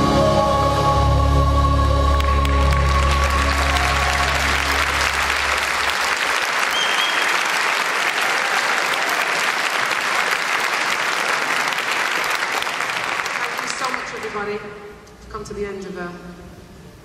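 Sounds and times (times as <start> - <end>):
choir holding final chord: 0.0 - 6.2
audience applauding: 2.1 - 14.4.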